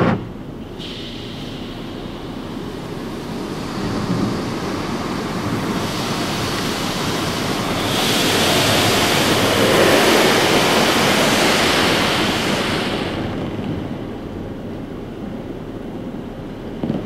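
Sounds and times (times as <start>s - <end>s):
water spray drumming on car: 2.7s - 13.6s.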